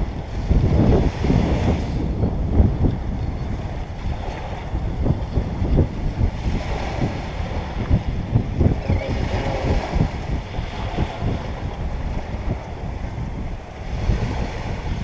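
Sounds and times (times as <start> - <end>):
small waves breaking on sand: 0.0 - 15.0
wind buffeting microphone: 0.0 - 15.0.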